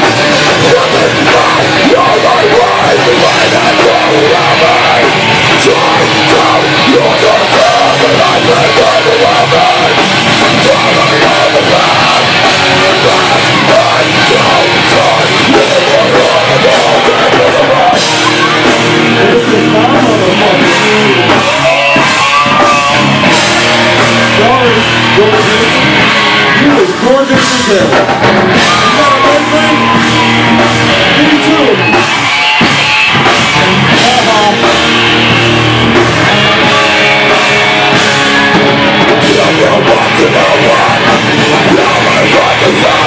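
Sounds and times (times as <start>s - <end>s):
person singing: 0.0s - 32.1s, 36.2s - 43.0s
bass: 0.0s - 43.0s
distorted electric guitars: 0.0s - 43.0s
drums: 0.0s - 43.0s.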